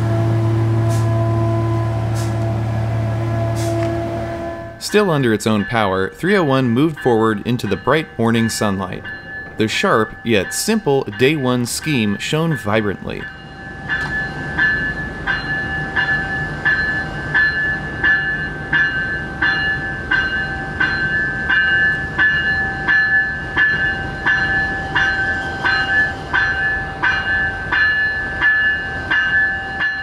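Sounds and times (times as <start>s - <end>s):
diesel engine hum: 0.0s - 5.0s
locomotive bell ringing: 0.0s - 30.0s.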